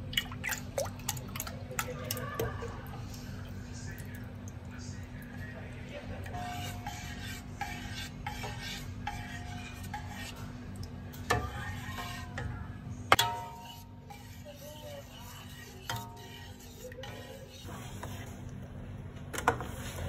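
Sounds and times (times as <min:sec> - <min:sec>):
spatula scraping a steel pot: 0:06.3 - 0:10.6, 0:11.2 - 0:18.3.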